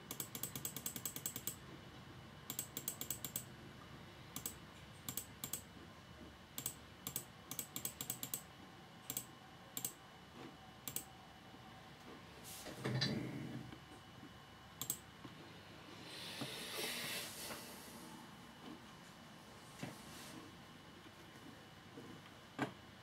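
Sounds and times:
computer mouse clicking: 0:00.1 - 0:01.6, 0:02.5 - 0:03.5, 0:04.4 - 0:05.7, 0:06.6 - 0:08.5, 0:09.1 - 0:10.0, 0:10.8 - 0:11.1, 0:14.8 - 0:15.0.

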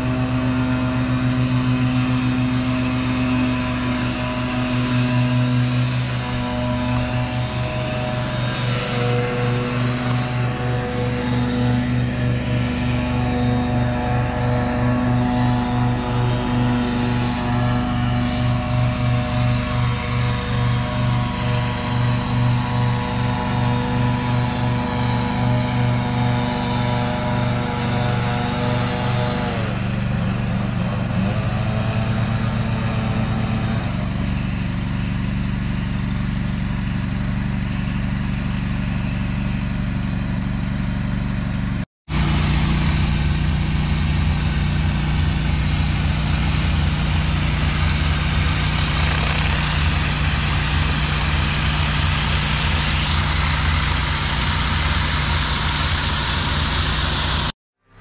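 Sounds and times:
pressure washer engine drone: 0:00.0 - 0:58.0
high-pressure water hissing on concrete: 0:42.1 - 0:57.5.

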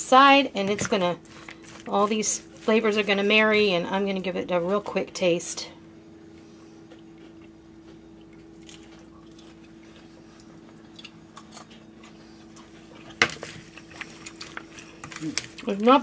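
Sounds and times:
steady low hum: 0:00.0 - 0:16.0
chewing crunchy food: 0:01.2 - 0:02.7, 0:06.3 - 0:16.0.

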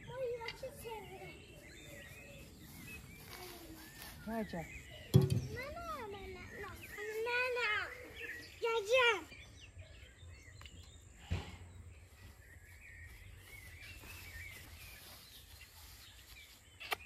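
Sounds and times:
faint bird chirps: 0:00.0 - 0:17.0
thump: 0:05.1 - 0:05.6.

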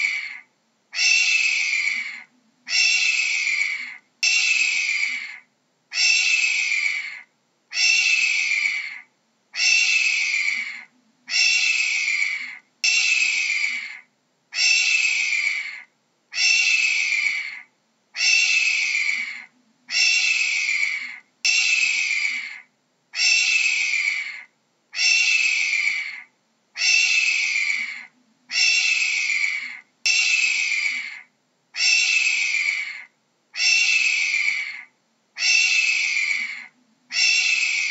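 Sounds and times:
hawk screaming: 0:00.0 - 0:14.0, 0:14.6 - 0:17.6, 0:18.2 - 0:37.9.

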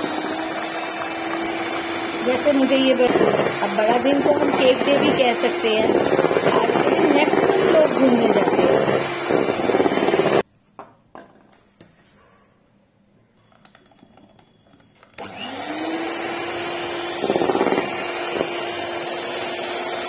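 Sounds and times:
electric hand mixer whining: 0:00.0 - 0:10.4, 0:15.2 - 0:20.0.

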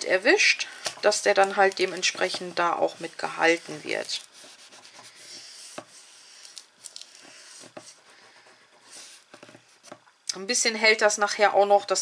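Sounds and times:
cardboard and paper rubbing: 0:01.0 - 0:10.0.

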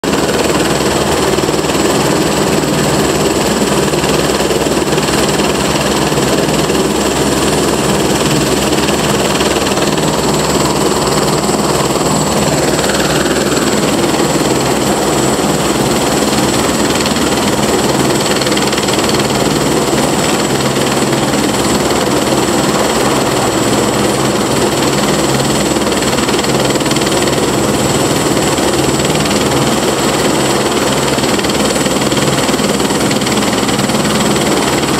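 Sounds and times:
rotor blades beating: 0:00.1 - 0:34.9
turbine whine: 0:00.1 - 0:34.9.

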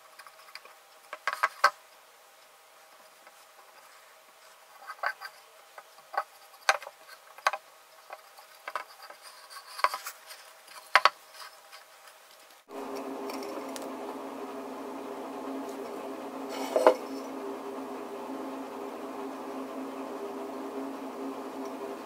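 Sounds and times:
steady hum: 0:12.6 - 0:22.0.

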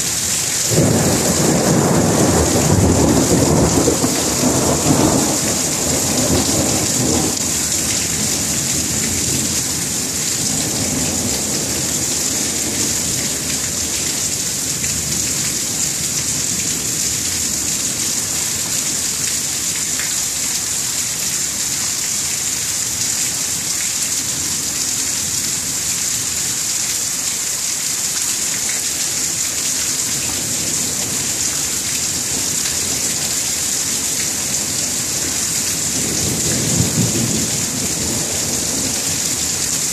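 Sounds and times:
steady rain hiss: 0:00.0 - 0:39.9
low thunder rumble: 0:00.7 - 0:09.8.

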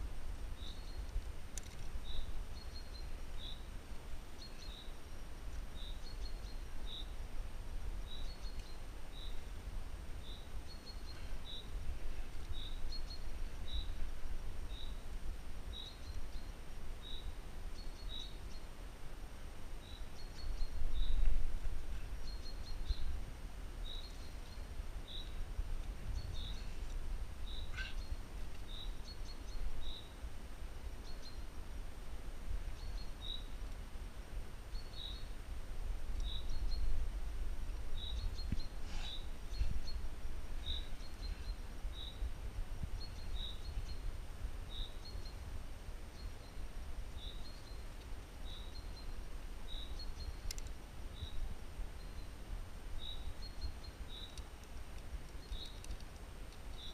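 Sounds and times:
wind rumble on microphone: 0:00.0 - 0:56.9
bird high chirp: 0:27.5 - 0:30.2.

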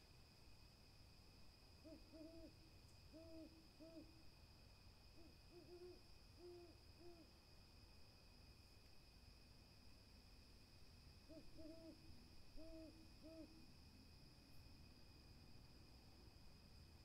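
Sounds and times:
owl hooting faintly: 0:01.8 - 0:04.3, 0:05.1 - 0:07.4, 0:11.2 - 0:13.7.

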